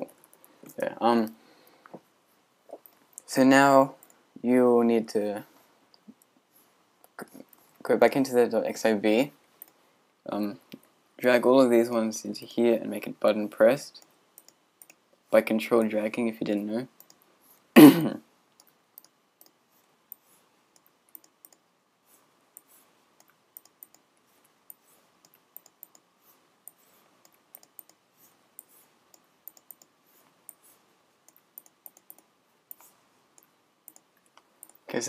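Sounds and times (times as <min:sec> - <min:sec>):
computer mouse clicks: 0:09.6 - 0:09.8, 0:14.0 - 0:15.0, 0:17.0 - 0:17.2, 0:18.6 - 0:21.6, 0:22.6 - 0:34.9.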